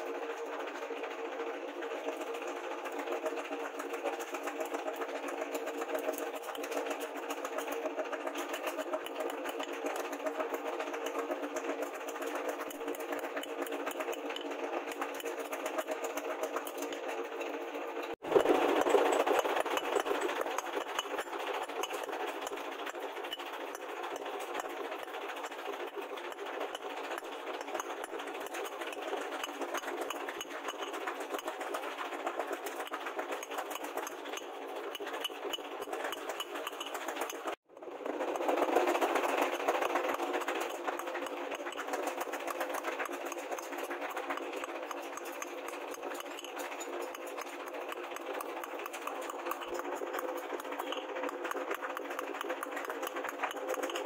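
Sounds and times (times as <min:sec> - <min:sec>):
clatter of small ticks: 0:18.4 - 0:54.0
hammer on hot steel and anvil: 0:40.2 - 0:54.0.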